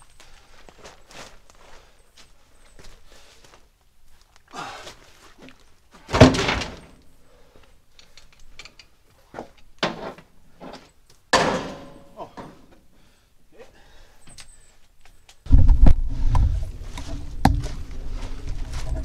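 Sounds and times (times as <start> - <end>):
log dropped onto truck bed: 6.1 - 7.0.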